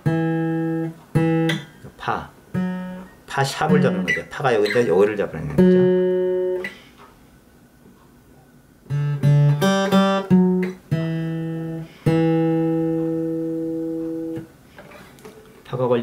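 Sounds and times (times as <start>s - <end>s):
acoustic guitar melody: 0.0s - 7.2s, 7.9s - 15.7s.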